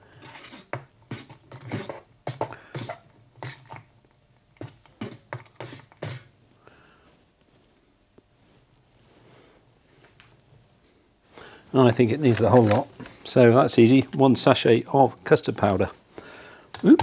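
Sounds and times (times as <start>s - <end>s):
metal spoon scraping metal pot: 0.2s - 3.8s.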